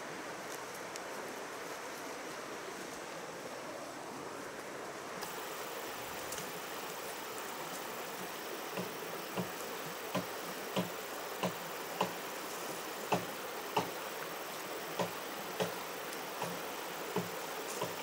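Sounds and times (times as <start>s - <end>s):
running water hiss: 0.0s - 18.0s
bare footsteps on grass: 15.0s - 18.0s.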